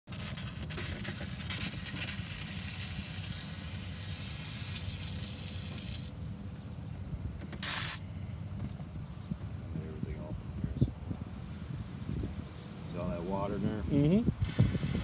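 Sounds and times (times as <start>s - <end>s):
steam hissing: 0.1s - 6.1s, 7.6s - 8.0s, 14.4s - 15.0s
low steady rumble: 0.2s - 15.0s.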